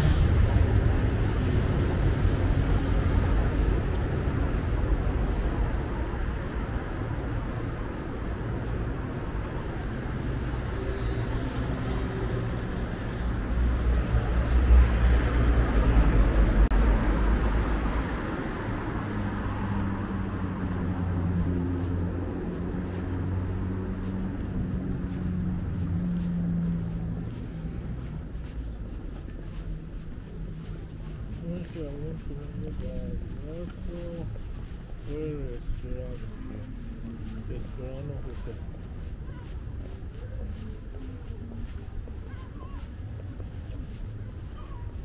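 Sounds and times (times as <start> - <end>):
vehicle passing close by: 0.0 - 5.6
steady engine hum: 0.0 - 45.0.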